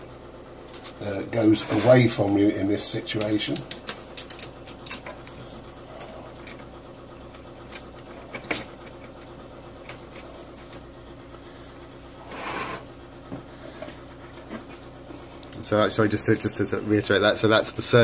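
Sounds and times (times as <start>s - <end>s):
scraping rustle: 0.7s - 2.2s, 12.2s - 12.9s.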